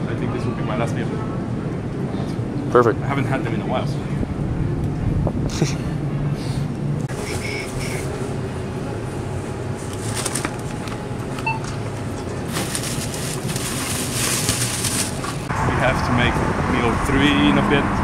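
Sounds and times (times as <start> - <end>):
low store hum: 0.0 - 18.0
plastic bags crinkling: 9.8 - 11.4, 12.0 - 15.5.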